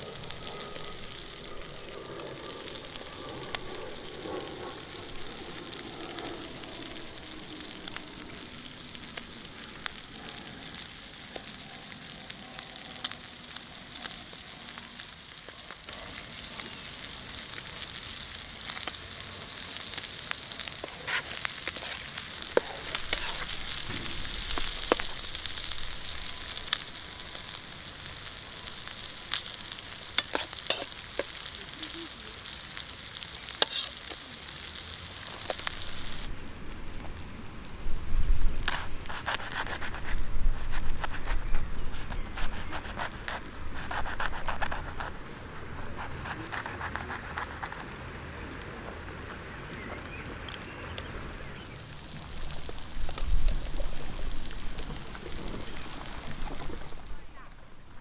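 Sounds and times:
food sizzling in frying pan: 0:00.0 - 0:37.1, 0:38.5 - 0:46.6, 0:51.3 - 0:57.5
knife scraping in pan: 0:20.8 - 0:25.1, 0:30.1 - 0:31.4, 0:33.6 - 0:34.2.

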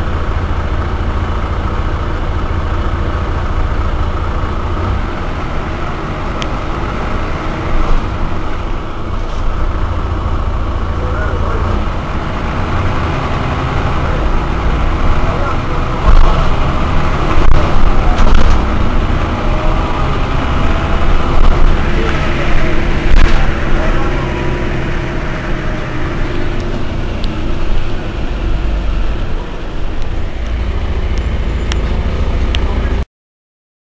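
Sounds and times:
bus diesel engine rumbling: 0:00.0 - 0:33.1.

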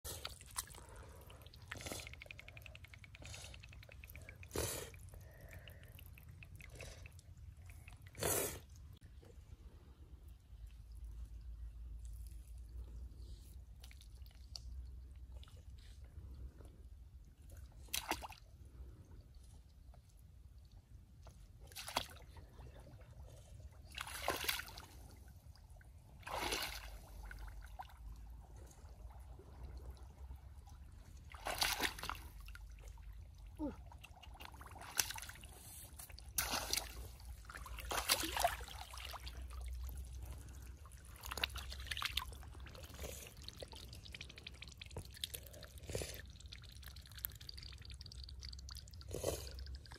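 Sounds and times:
splashing in muddy water: 0:23.9 - 0:25.2, 0:26.1 - 0:28.0, 0:31.3 - 0:33.0, 0:33.9 - 0:45.6.

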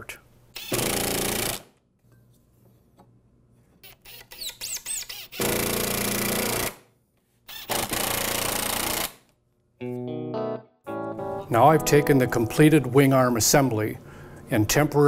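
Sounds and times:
cordless drill driving screws: 0:00.6 - 0:01.6
short clicks and squeaks: 0:03.8 - 0:05.4.

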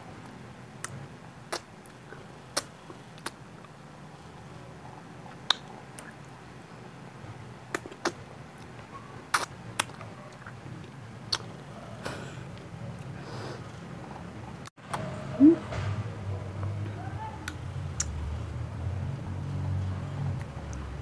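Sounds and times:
lip smacks and tongue clicks: 0:00.8 - 0:02.0, 0:02.6 - 0:03.8, 0:05.3 - 0:06.2, 0:09.3 - 0:11.6.

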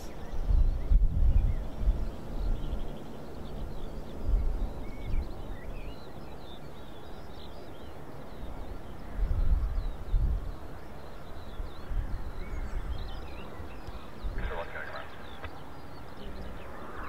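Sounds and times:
small birds chirping: 0:00.0 - 0:17.0
wind buffeting microphone: 0:00.0 - 0:17.0.

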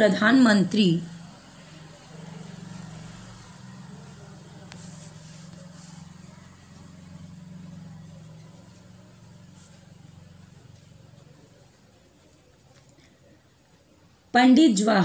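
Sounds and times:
low mechanical hum: 0:00.2 - 0:14.3
faint pen scratches on paper: 0:04.0 - 0:11.3.

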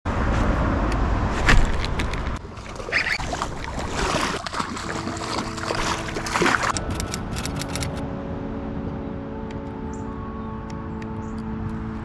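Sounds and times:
fish splashing at water surface: 0:02.4 - 0:06.8.

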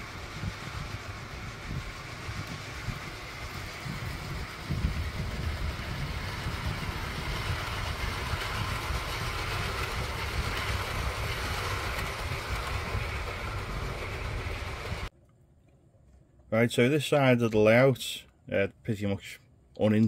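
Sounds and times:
model train rolling on track: 0:00.0 - 0:15.1.

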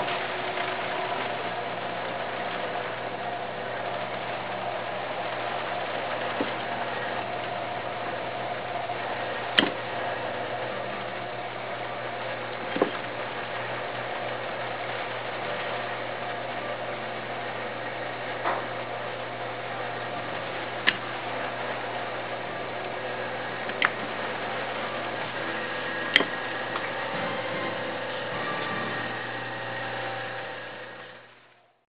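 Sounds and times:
potter's wheel motor humming: 0:00.0 - 0:31.8
sharp clicks: 0:09.5 - 0:09.9, 0:20.8 - 0:21.1, 0:23.6 - 0:24.0, 0:25.3 - 0:29.2.

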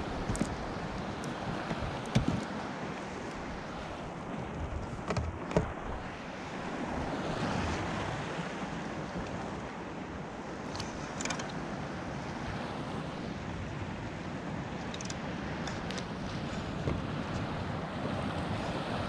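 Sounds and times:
water lapping around kayak: 0:00.0 - 0:19.0
gear knocking on hull: 0:00.1 - 0:02.6, 0:04.5 - 0:05.9.

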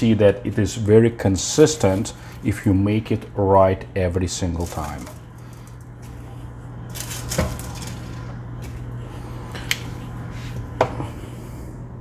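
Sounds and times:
steady low hum: 0:00.0 - 0:12.0
foil rustling: 0:04.4 - 0:05.9, 0:06.9 - 0:08.3.

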